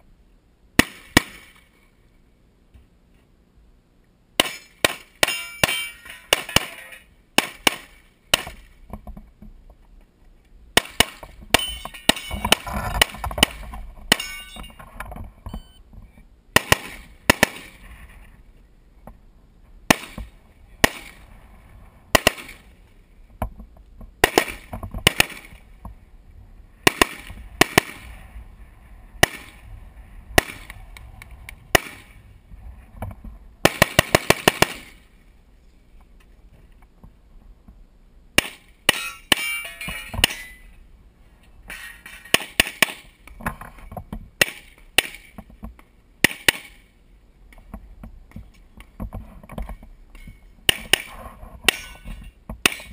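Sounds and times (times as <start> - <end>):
rifle shots: 0.8 - 1.6, 4.4 - 8.7, 10.8 - 14.6, 16.6 - 17.8, 19.9 - 21.2, 22.1 - 22.7, 24.2 - 25.6, 26.8 - 28.2, 29.2 - 29.6, 30.4 - 30.8, 31.7 - 32.2, 33.6 - 35.0
pistol shots: 16.6 - 17.8, 22.2 - 22.6, 24.2 - 25.6, 26.8 - 28.0, 29.2 - 29.6, 31.7 - 32.1.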